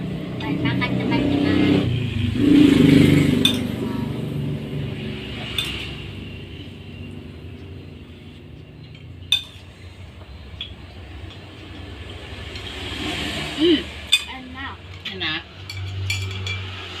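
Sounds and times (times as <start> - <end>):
plates and spoons clinking: 3.4 - 3.8, 5.4 - 6.1, 8.6 - 9.9, 14.0 - 17.0.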